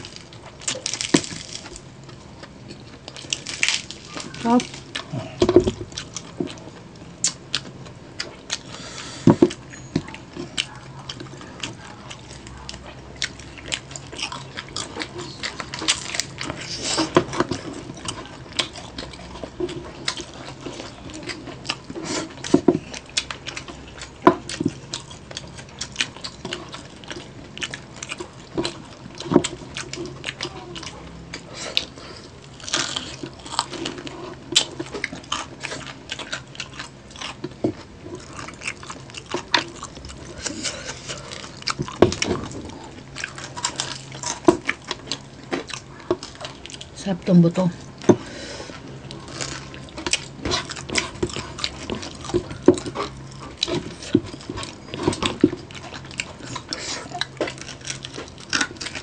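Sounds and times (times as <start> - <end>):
crisp skin crunching: 0.0 - 7.8
wet chewing: 0.0 - 59.0.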